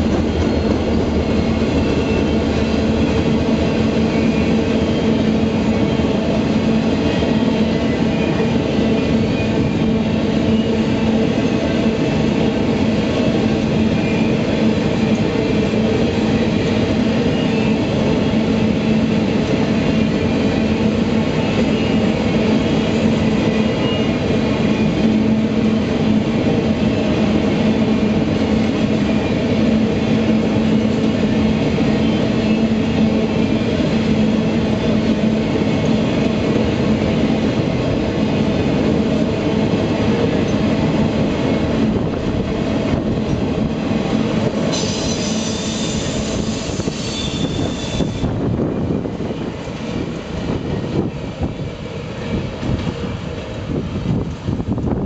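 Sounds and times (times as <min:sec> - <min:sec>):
train wheels rumbling on rail: 0:00.0 - 0:55.0
high-pitched wheel squeal: 0:44.7 - 0:48.4.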